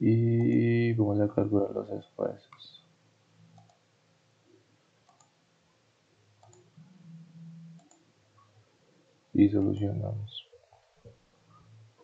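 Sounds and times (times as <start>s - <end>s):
low steady hum: 0.0s - 12.0s
computer mouse clicks: 3.5s - 3.8s, 5.0s - 5.4s, 6.4s - 6.8s, 7.6s - 8.1s.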